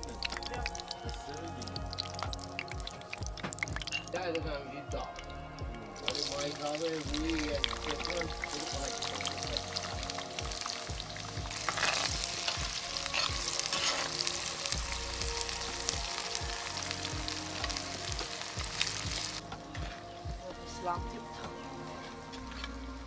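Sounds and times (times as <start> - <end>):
potatoes sizzling in hot oil: 0.0 - 23.0
spatula scraping and stirring: 9.3 - 14.8.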